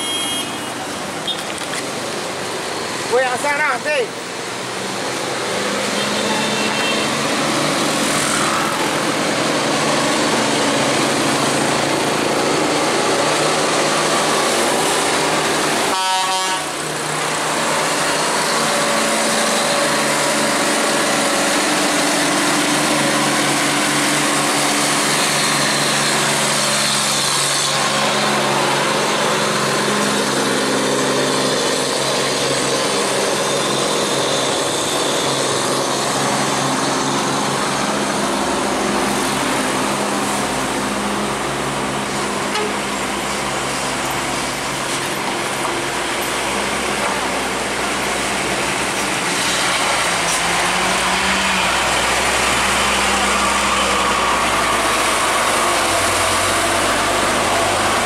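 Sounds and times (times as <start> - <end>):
truck diesel engine drone: 0.0 - 58.0.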